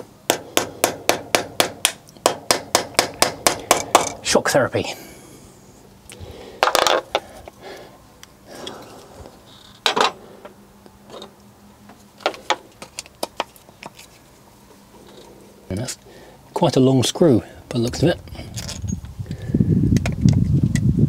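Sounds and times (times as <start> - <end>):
metal tools clinking: 18.5 - 19.1.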